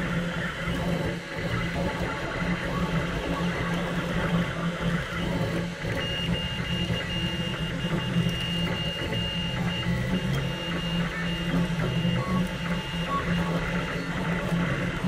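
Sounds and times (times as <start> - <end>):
stepper motors buzzing: 0.0 - 15.0.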